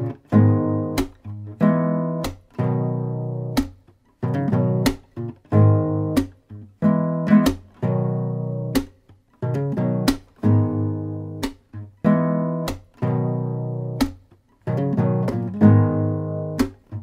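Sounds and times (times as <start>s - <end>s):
acoustic guitar strummed chords: 0.0s - 17.0s.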